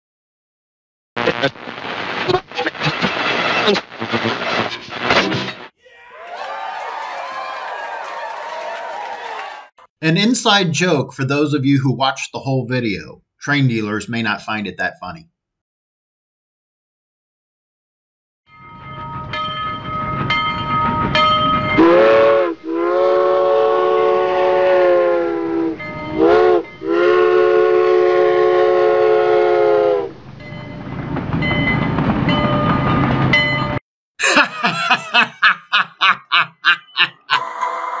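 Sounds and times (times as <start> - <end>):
train rumble: 18.8 - 22.4, 30.0 - 33.8
locomotive air horn: 21.8 - 30.2.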